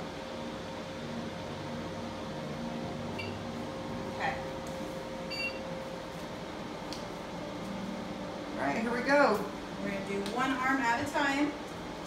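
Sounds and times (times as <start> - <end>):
machine humming: 0.0 - 12.0
short electronic beeps: 3.2 - 3.4, 5.3 - 5.6.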